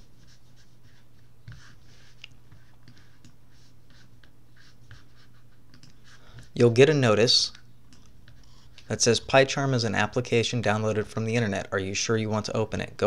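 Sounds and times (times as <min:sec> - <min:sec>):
soft rustles and scratches: 0:00.0 - 0:06.8, 0:07.4 - 0:09.2.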